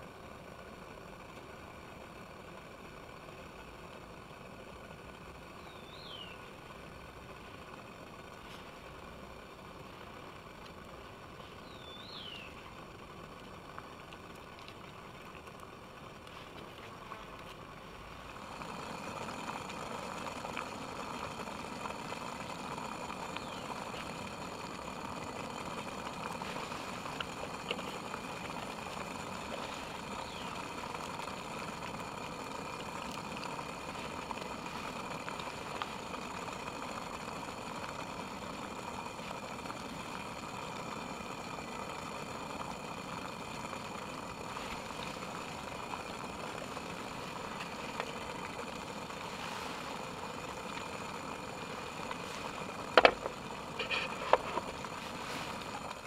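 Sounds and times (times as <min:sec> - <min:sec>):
steady rushing roar: 0:17.8 - 0:56.0.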